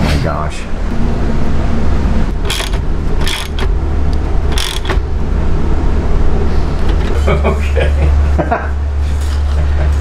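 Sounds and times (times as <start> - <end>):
steady low hum: 0.0 - 10.0
ratchet wrench clicking: 2.4 - 3.8, 4.5 - 5.0.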